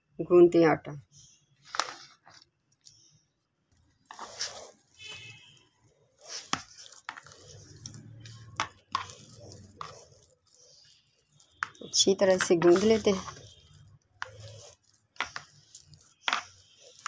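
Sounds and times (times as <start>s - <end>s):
hands squishing dough: 1.8s - 17.0s.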